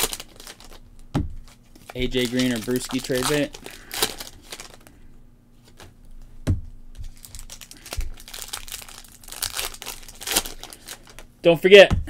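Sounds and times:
cards rustling: 0:00.0 - 0:00.8, 0:01.4 - 0:05.0, 0:05.6 - 0:06.3, 0:06.9 - 0:11.9
wrapper crinkling: 0:00.0 - 0:05.0, 0:07.0 - 0:11.3.

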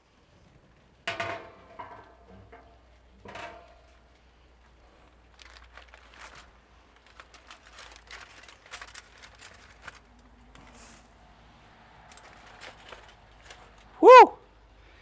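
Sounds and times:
aluminum foil crinkling: 0:04.8 - 0:11.1, 0:12.0 - 0:14.0.

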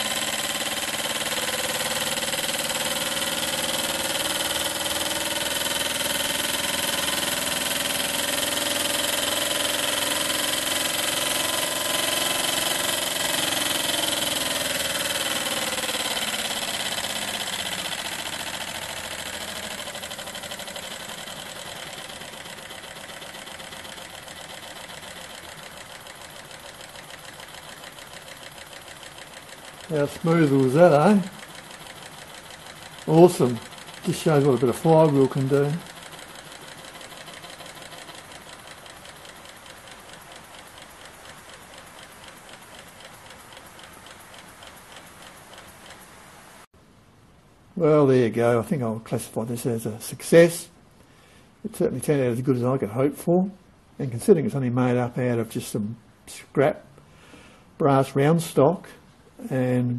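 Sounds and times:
model steam engine running: 0:00.0 - 0:46.3.

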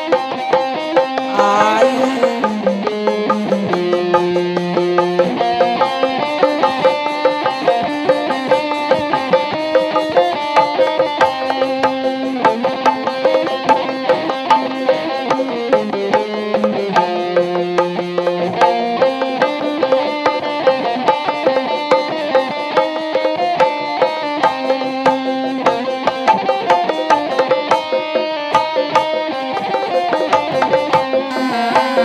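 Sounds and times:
steady drum beat: 0:01.3 - 0:05.3.

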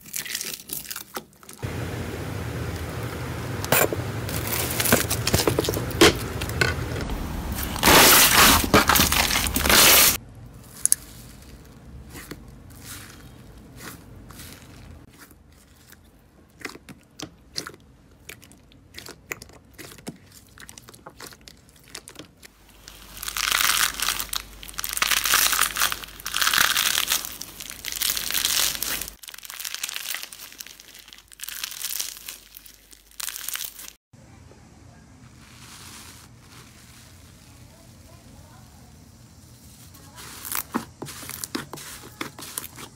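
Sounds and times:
slime crunching and crackling: 0:00.0 - 0:01.6, 0:04.3 - 0:34.0, 0:39.8 - 0:42.9.

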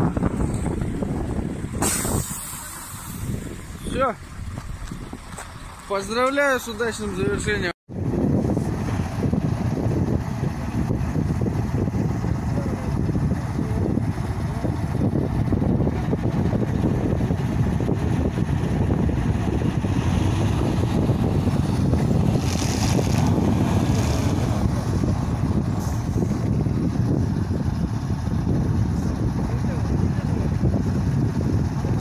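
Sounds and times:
truck diesel engines rumbling: 0:00.0 - 0:32.0
brief air hiss: 0:01.8 - 0:03.4.

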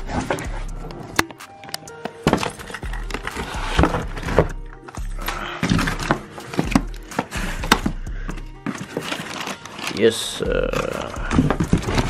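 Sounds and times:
background music with bass beat: 0:00.0 - 0:08.7, 0:10.4 - 0:12.0
cardboard box scraping and rustling: 0:08.6 - 0:10.2.

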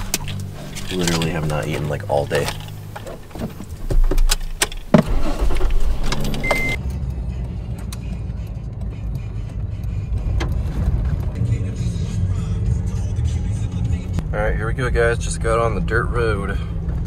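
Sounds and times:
engine and road noise: 0:00.0 - 0:17.0
engine starting: 0:05.0 - 0:06.8
short beep: 0:06.4 - 0:06.8.

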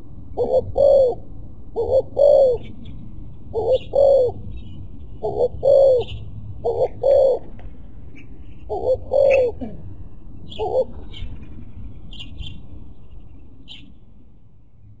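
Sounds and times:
dove cooing: 0:00.4 - 0:02.8, 0:03.5 - 0:04.4, 0:05.2 - 0:07.6, 0:08.5 - 0:11.2
small birds chirping: 0:10.4 - 0:14.0.

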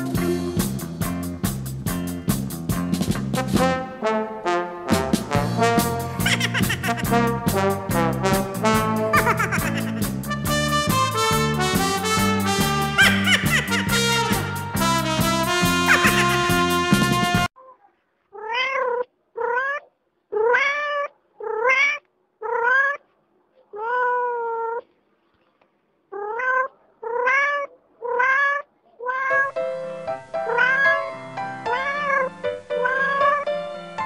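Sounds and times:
music: 0:00.0 - 0:17.5, 0:29.5 - 0:34.0
cat meowing: 0:18.4 - 0:23.0, 0:23.7 - 0:24.9, 0:26.1 - 0:29.6, 0:30.4 - 0:33.5.

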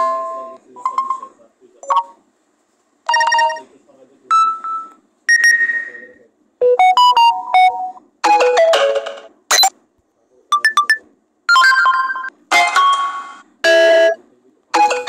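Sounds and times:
electronic notification tones: 0:06.6 - 0:08.6.

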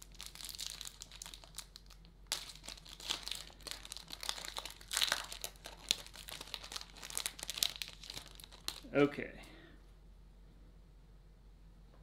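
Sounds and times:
foil wrapper crinkling and tearing: 0:00.0 - 0:09.0.

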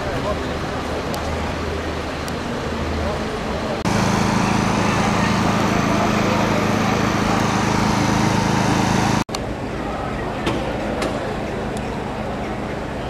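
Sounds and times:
diesel engine running: 0:02.7 - 0:09.3.

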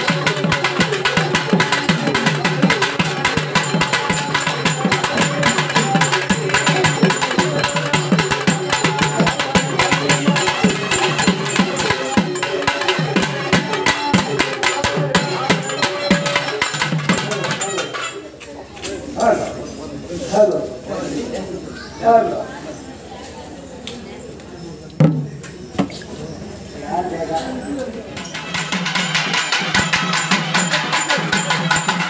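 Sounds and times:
fast drumming on a drum: 0:00.0 - 0:17.7, 0:28.2 - 0:32.0.

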